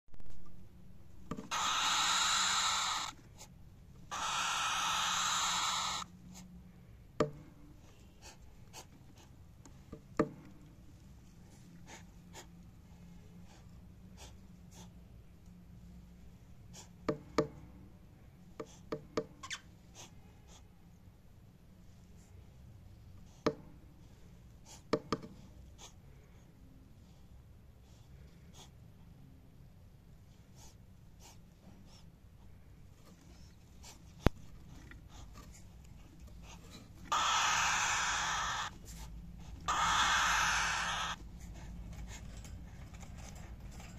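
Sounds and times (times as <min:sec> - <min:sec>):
birds hissing: 0:01.4 - 0:03.4, 0:04.1 - 0:06.5, 0:36.4 - 0:41.6.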